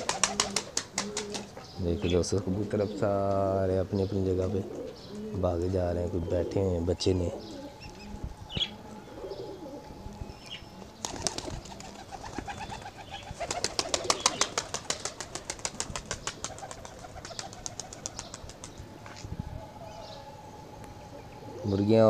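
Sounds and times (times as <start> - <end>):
pigeon wings beating: 0.0 - 1.5, 11.0 - 18.8
pigeons cooing: 0.0 - 22.0.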